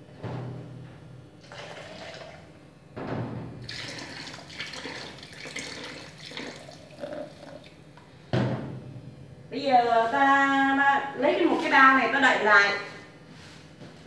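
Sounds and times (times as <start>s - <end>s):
water pouring into a bucket: 1.4s - 2.4s, 3.6s - 7.7s.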